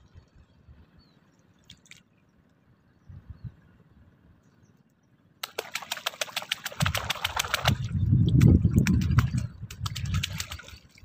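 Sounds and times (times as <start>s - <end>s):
low churning of water: 5.4s - 11.0s
water splashing around wading person: 5.4s - 11.0s.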